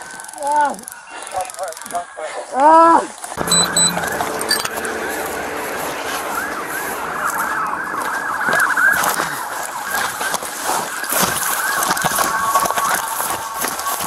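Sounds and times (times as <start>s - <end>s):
police sirens wailing: 3.4s - 14.0s.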